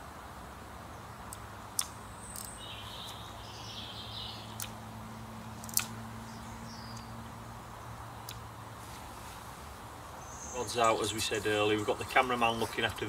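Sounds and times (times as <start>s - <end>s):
small birds chirping: 0.8s - 13.0s
sharp clicks: 1.3s - 3.2s, 4.5s - 4.8s, 5.6s - 6.0s, 6.9s - 7.1s, 8.2s - 8.5s.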